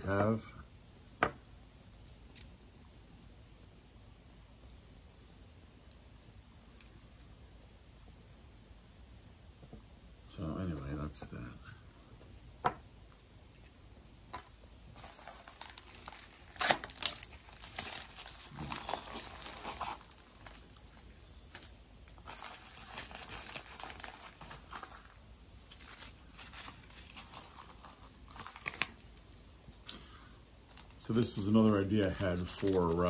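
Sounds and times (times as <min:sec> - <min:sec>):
plastic bags crinkling: 0:14.9 - 0:29.3, 0:30.6 - 0:33.0.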